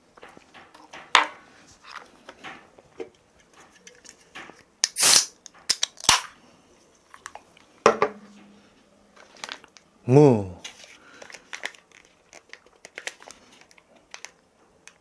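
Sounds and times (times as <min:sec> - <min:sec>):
can handling clicks: 0:04.8 - 0:06.3
can opening hiss: 0:04.8 - 0:06.3.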